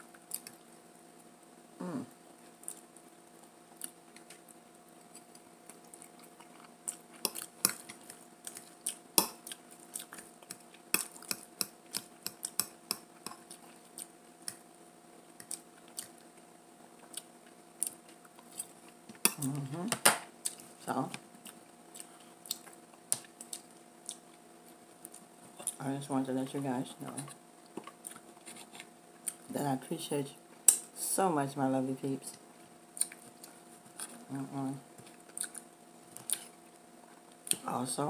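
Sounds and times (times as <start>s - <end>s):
faint steady hum: 0.0s - 38.0s
chewing and mouth smacks: 0.2s - 0.7s, 3.8s - 14.6s, 15.3s - 16.4s, 17.0s - 19.4s, 21.4s - 25.8s, 33.0s - 34.2s, 35.0s - 37.6s.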